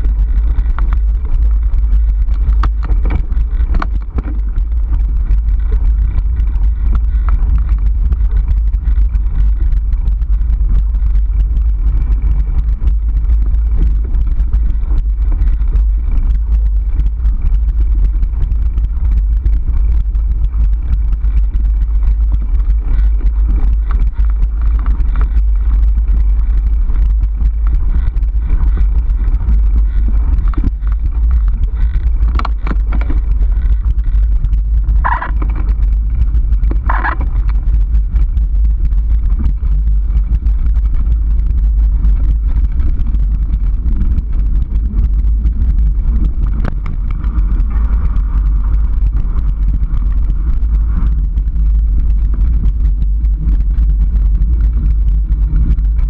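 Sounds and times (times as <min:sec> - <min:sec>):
bike knocks and rattles: 0:00.0 - 0:38.2
trail vibration rumble: 0:00.0 - 0:56.0
wind on microphone: 0:00.0 - 0:56.0.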